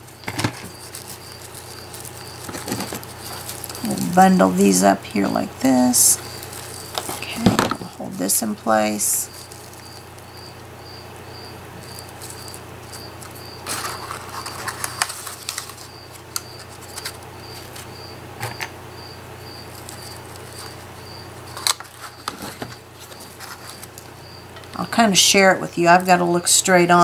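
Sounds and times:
paper crinkling and rustling: 0:00.0 - 0:10.6, 0:11.8 - 0:18.0, 0:19.6 - 0:24.2.

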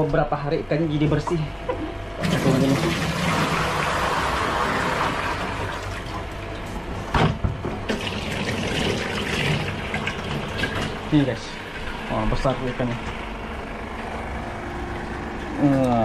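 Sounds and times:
water pouring into metal sink: 0:02.2 - 0:06.1, 0:07.9 - 0:11.4.

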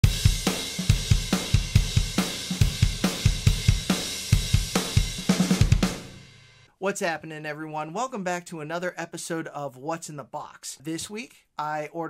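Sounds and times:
fast drum-kit beat: 0:00.0 - 0:06.7.

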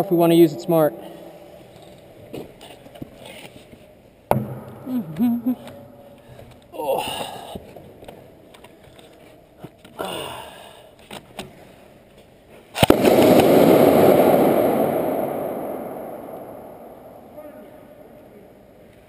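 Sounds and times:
grenade bang: 0:12.8 - 0:17.4.

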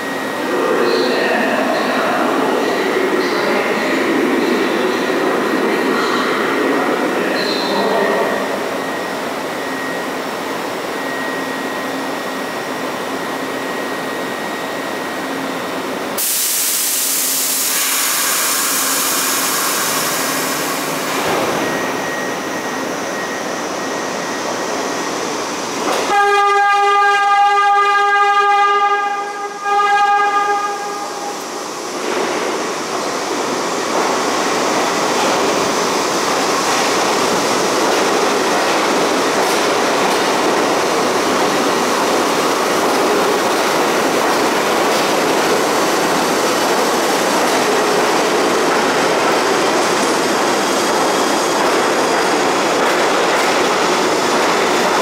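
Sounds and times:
subway train running slowly: 0:00.0 - 0:55.0
sharp air hiss: 0:16.2 - 0:21.0
train horn: 0:26.0 - 0:31.3.

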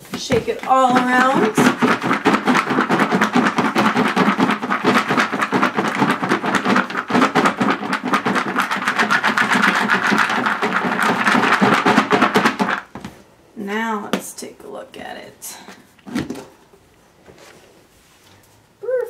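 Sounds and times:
cereal rattling in plastic bowl: 0:00.1 - 0:12.9.

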